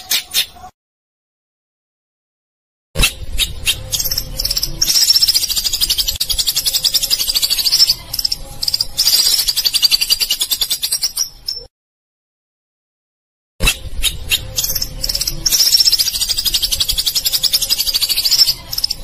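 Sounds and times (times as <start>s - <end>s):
high-pitched pulsing animal trill: 3.0s - 11.7s, 13.6s - 19.0s.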